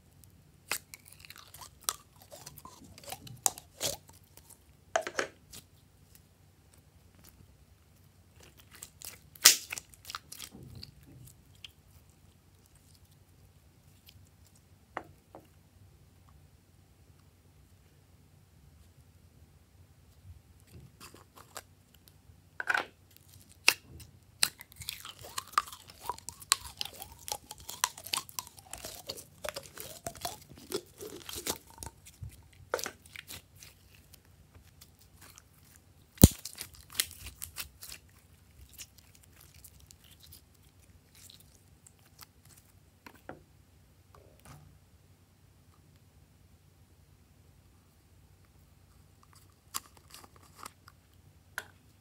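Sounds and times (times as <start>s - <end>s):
slime squishing and crackling: 0.6s - 4.6s, 8.3s - 13.2s, 23.1s - 42.7s.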